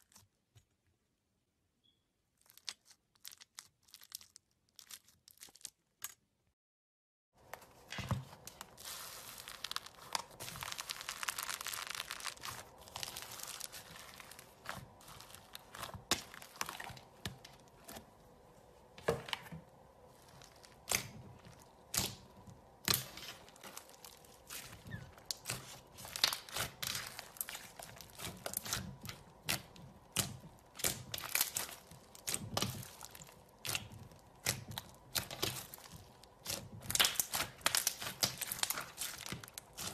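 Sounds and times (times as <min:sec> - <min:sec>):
slime crackling and popping: 0:08.5 - 0:17.8, 0:20.2 - 0:39.9.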